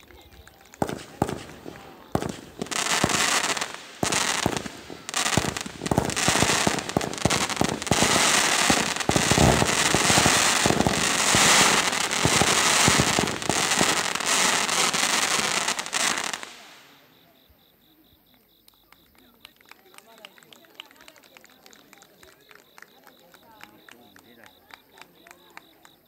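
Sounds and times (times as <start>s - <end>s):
fireworks popping and crackling: 0.0s - 17.1s
fireworks fizzing hiss: 0.1s - 17.1s.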